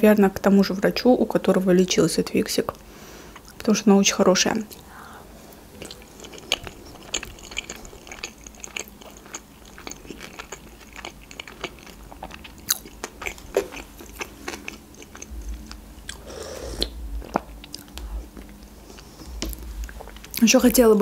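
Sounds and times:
chewing with wet mouth clicks: 0:05.8 - 0:20.4.

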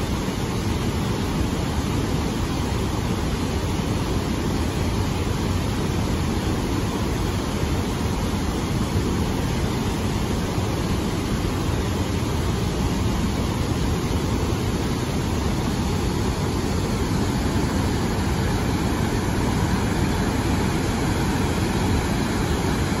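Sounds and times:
water rushing over weir: 0:00.0 - 0:23.0.

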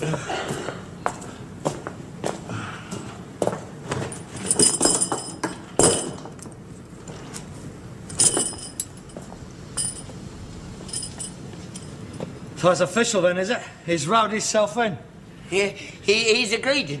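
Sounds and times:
harness buckles jingling: 0:04.0 - 0:06.6, 0:08.1 - 0:12.4.

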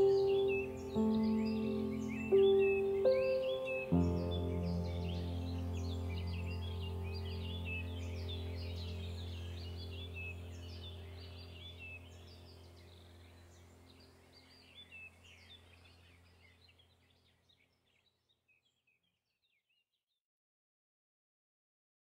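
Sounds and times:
low steady drone: 0:00.0 - 0:15.3
birdsong chirps: 0:00.0 - 0:20.0.

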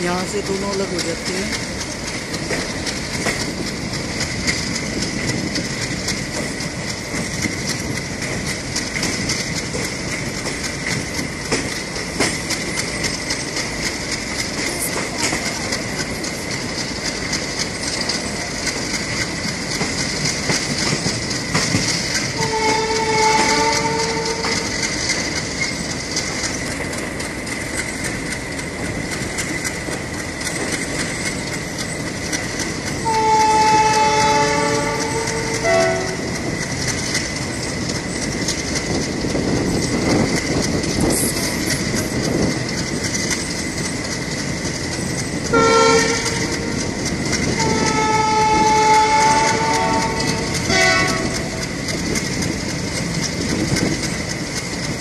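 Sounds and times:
train rolling and wheel clatter: 0:00.0 - 0:55.0
train horn blasts: 0:22.4 - 0:24.7, 0:33.0 - 0:36.4, 0:45.5 - 0:46.8, 0:47.5 - 0:51.6.

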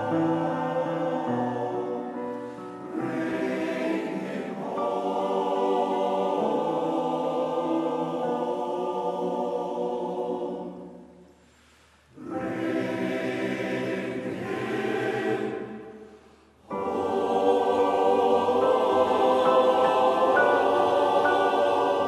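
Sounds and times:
male voice choir singing: 0:02.9 - 0:11.0, 0:12.2 - 0:15.9, 0:16.6 - 0:22.0.

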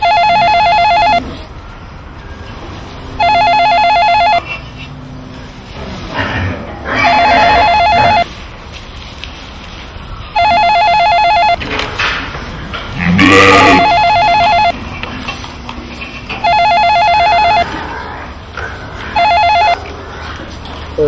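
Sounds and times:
telephone ringing with warbling trill: 0:00.0 - 0:01.3, 0:03.2 - 0:04.5, 0:07.0 - 0:08.3, 0:10.4 - 0:11.6, 0:13.2 - 0:14.8, 0:16.4 - 0:17.8, 0:19.2 - 0:19.8
lamb bleating: 0:06.9 - 0:08.3, 0:13.0 - 0:14.6.

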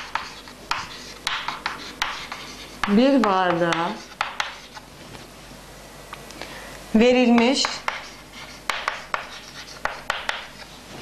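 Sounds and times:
chalk writing on a chalkboard: 0:00.0 - 0:04.9, 0:07.4 - 0:10.8.

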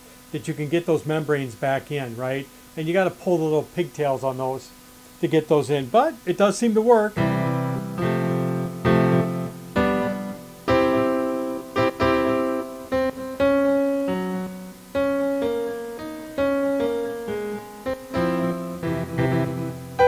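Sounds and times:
piano chords and melody: 0:07.2 - 0:20.0.

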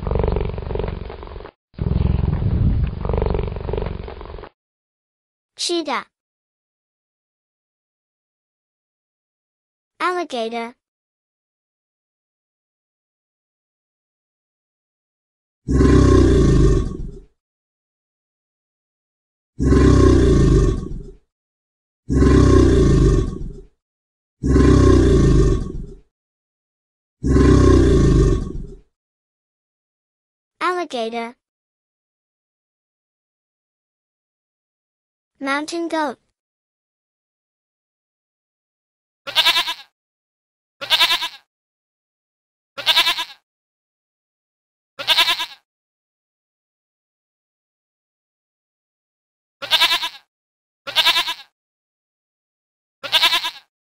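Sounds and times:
alligator bellowing: 0:15.7 - 0:17.2, 0:19.6 - 0:21.2, 0:22.1 - 0:23.6, 0:24.4 - 0:26.0, 0:27.2 - 0:28.8
goat bleating: 0:39.3 - 0:39.9, 0:40.8 - 0:41.5, 0:42.8 - 0:43.4, 0:45.0 - 0:45.6, 0:49.6 - 0:50.3, 0:50.9 - 0:51.5, 0:53.0 - 0:53.7.

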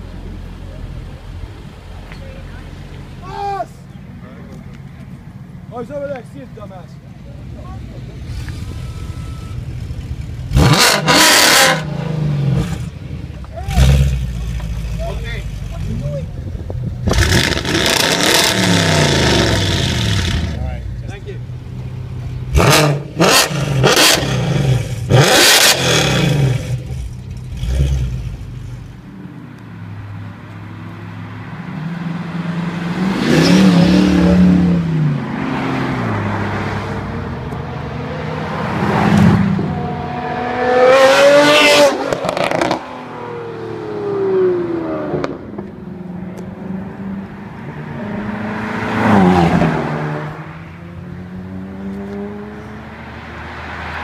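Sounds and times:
cars accelerating past: 0:08.1 - 0:28.8, 0:29.5 - 0:54.0
car exhaust revving with pops: 0:09.8 - 0:15.0, 0:45.1 - 0:46.5.

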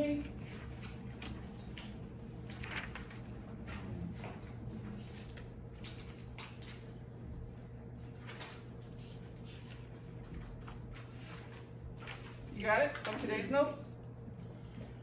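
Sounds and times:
steady low hum: 0:00.0 - 0:15.0
faint clicks and rustles: 0:00.2 - 0:07.0.

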